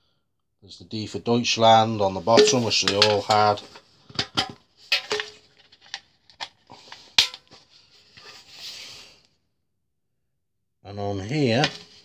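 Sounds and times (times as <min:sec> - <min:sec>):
metal canister clinks and knocks: 0:02.3 - 0:05.4, 0:07.2 - 0:07.6, 0:11.6 - 0:12.0.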